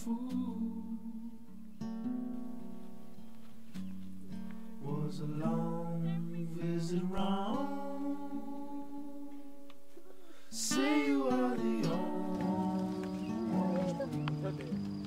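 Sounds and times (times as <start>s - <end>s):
person singing slow phrase: 0.0s - 1.5s, 4.8s - 9.6s, 10.5s - 14.6s.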